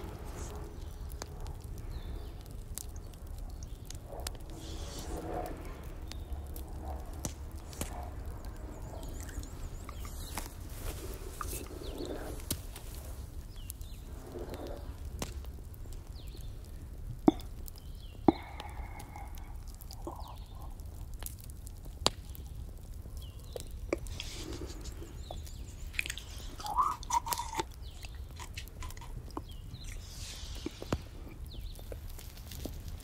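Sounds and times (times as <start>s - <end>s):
campfire crackling: 0.0s - 33.0s
low steady rumble: 0.0s - 33.0s
breathy exhales: 18.3s - 20.8s.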